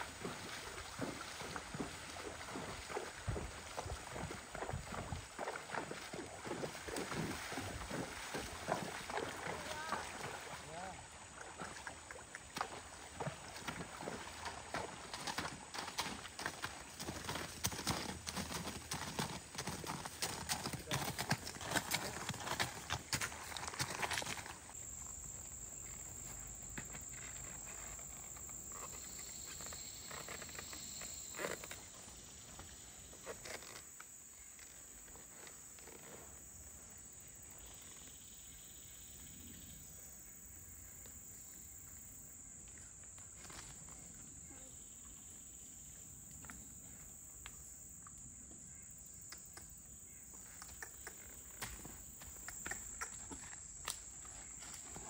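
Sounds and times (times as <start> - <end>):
horse hooves on dirt: 0.0 - 10.7, 11.4 - 36.3, 49.6 - 55.0
insects droning: 0.0 - 55.0.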